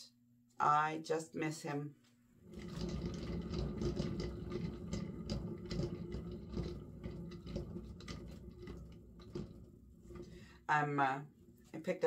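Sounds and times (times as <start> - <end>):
turntable rumbling: 2.4 - 11.7
small clicks and rattles: 2.5 - 10.7.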